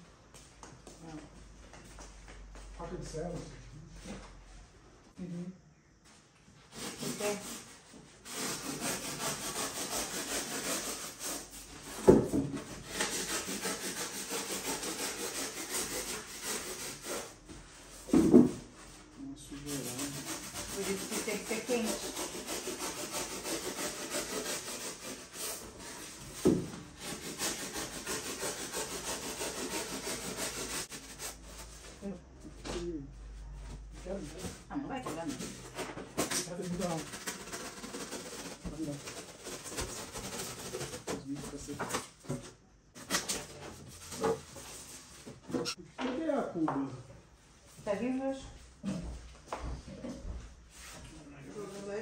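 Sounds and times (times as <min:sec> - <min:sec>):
knife sawing through styrofoam: 0:06.7 - 0:17.4, 0:19.5 - 0:32.0, 0:35.2 - 0:41.6, 0:43.0 - 0:45.3.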